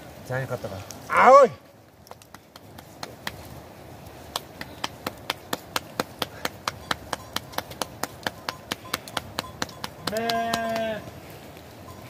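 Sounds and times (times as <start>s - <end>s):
dough slapped between palms: 2.1s - 3.4s, 4.3s - 10.9s.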